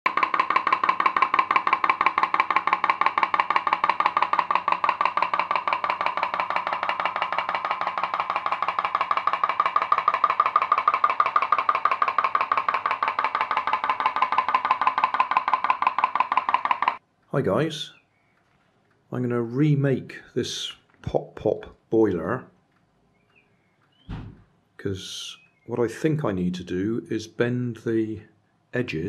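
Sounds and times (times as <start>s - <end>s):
pop-pop boat boiler popping: 0.0s - 17.0s.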